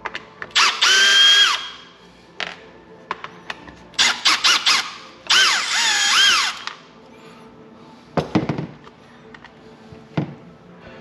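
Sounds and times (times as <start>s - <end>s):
electric screwdriver motor whine: 0.6s - 1.7s, 4.3s - 6.7s.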